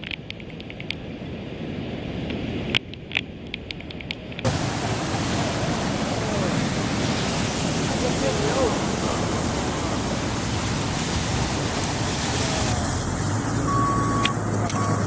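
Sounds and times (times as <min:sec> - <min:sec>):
surf rushing over rocks: 0:04.4 - 0:15.0.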